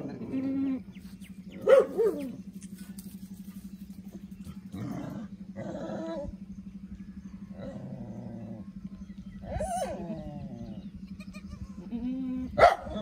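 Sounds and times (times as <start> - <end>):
low pulsing hum: 0.0 - 13.0
goats bleating: 11.0 - 12.4.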